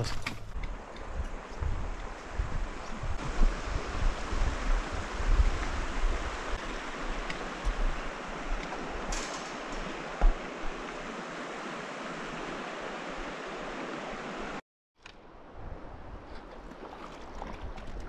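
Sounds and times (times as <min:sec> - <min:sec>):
river rushing over rocks: 0:03.2 - 0:14.6.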